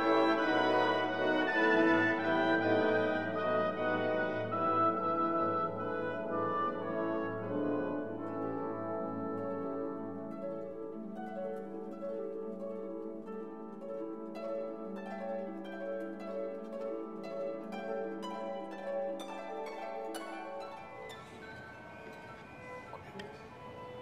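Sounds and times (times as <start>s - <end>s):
plucked harp-like music: 0.0s - 24.0s.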